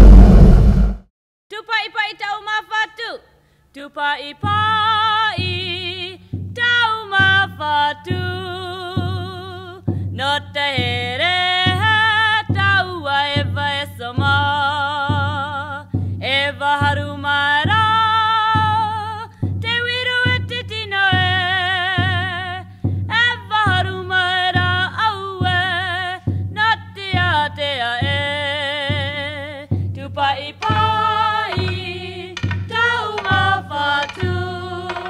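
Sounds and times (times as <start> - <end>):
steady beat: 30.6 - 35.0.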